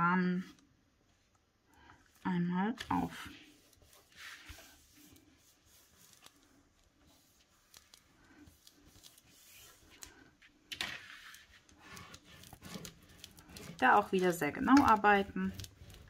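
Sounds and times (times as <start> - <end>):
paper rustling: 2.8 - 16.0.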